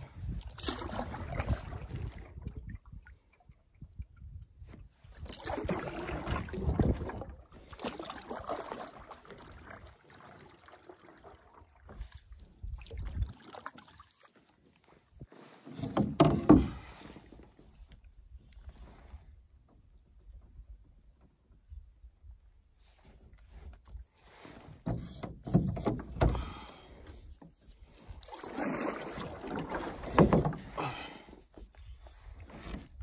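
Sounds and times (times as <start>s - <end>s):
wind rumble on microphone: 0.0s - 7.5s, 12.0s - 13.4s
water sloshing against canoe: 0.0s - 21.1s, 22.8s - 33.0s.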